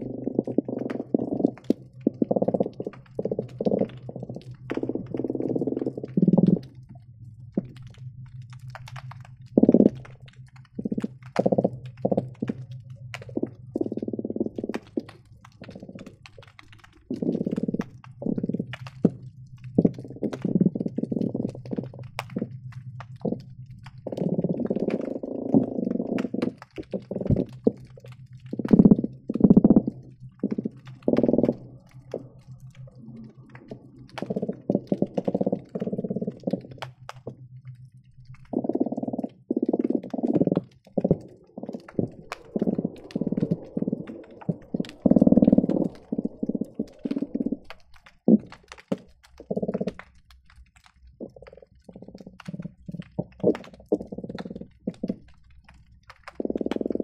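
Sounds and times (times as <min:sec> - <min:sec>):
fish drumming underwater: 0:00.0 - 0:57.0
crackle of sharp clicks: 0:00.1 - 0:57.0.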